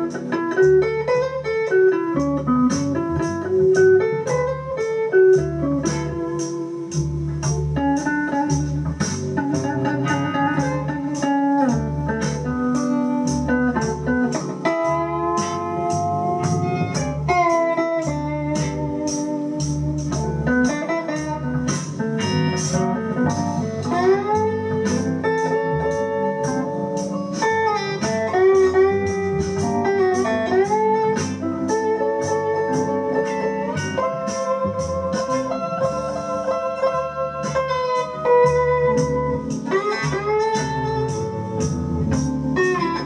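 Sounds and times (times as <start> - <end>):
slide blues electric guitar: 0.0 - 43.0
steady ticking beat: 0.0 - 43.0.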